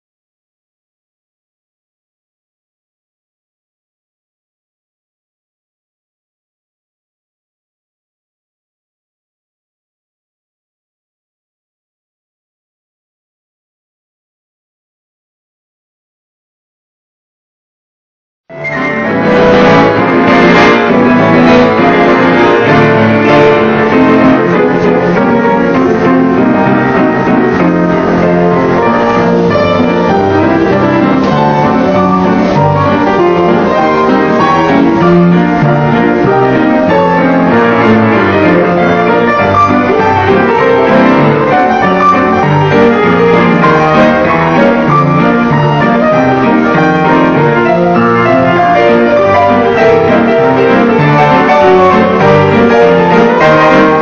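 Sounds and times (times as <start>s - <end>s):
ragtime piano duet: 18.5s - 54.0s.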